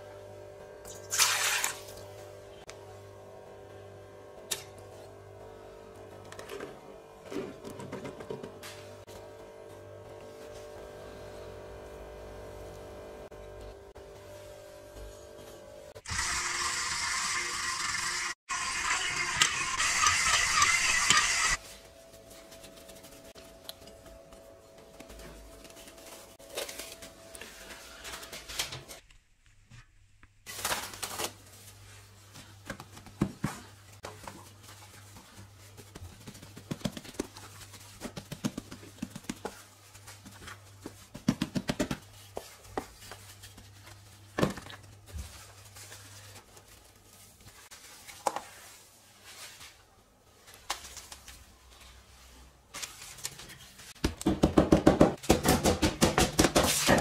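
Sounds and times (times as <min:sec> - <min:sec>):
cling film crinkling and tearing: 0:30.4 - 0:31.8.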